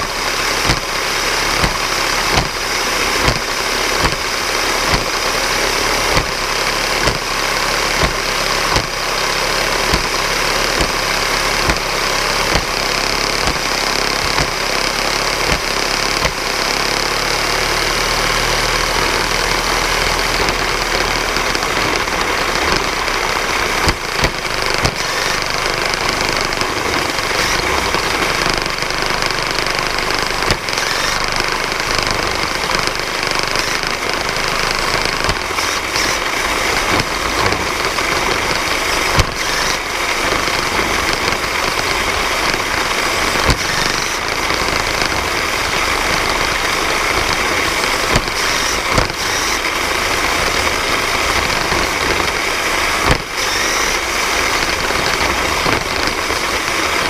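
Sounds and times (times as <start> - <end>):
electric motors and gears running: 0.0 - 57.0
sharp knocks: 1.6 - 2.6, 3.2 - 4.3, 4.9 - 5.2, 8.0 - 9.0, 9.9 - 11.9.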